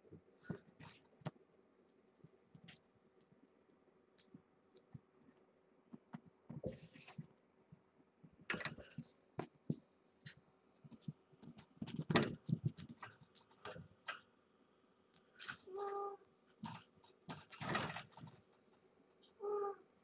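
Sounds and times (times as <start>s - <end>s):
kittens' paws thumping and scratching: 5.9s - 14.3s, 16.6s - 18.9s.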